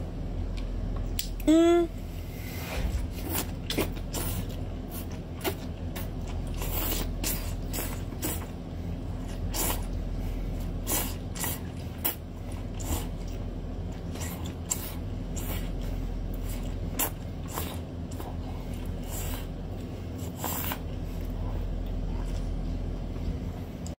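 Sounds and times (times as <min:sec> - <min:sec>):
steady low hum: 0:00.0 - 0:23.9
wet slurping and sucking: 0:20.1 - 0:21.3.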